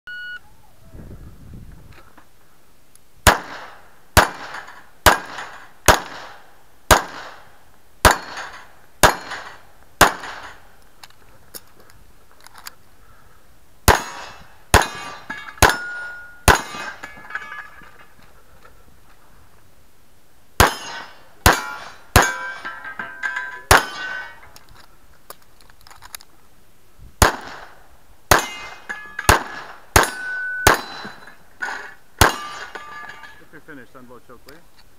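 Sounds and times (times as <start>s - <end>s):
pistol shots: 3.2s - 10.7s, 13.9s - 17.0s, 20.6s - 22.6s, 23.6s - 24.3s, 27.2s - 31.2s, 32.2s - 32.8s
steel plate clanging: 13.9s - 18.2s, 20.6s - 24.6s, 28.3s - 33.6s.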